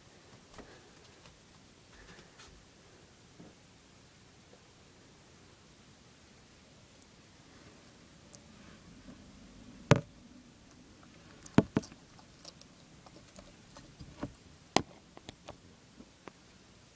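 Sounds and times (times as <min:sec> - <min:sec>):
lizard chewing clicks and crunches: 0:10.7 - 0:15.6.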